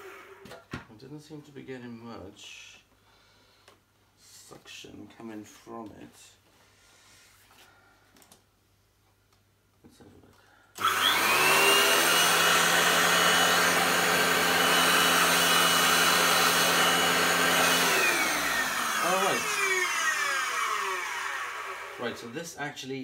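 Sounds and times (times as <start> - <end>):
vacuum cleaner motor whining: 0.0 - 0.6, 10.8 - 22.3.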